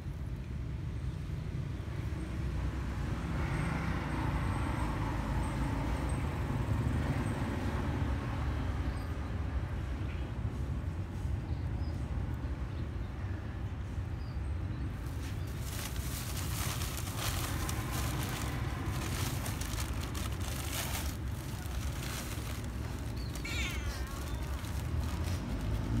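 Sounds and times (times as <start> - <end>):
cat meowing: 23.2 - 24.6.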